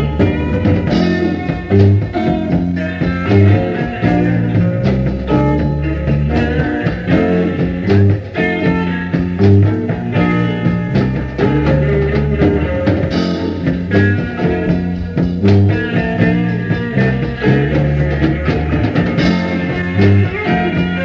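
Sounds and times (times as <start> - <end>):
bass line: 0.0 - 21.0
drum hits: 0.0 - 21.0
guitar: 0.0 - 21.0.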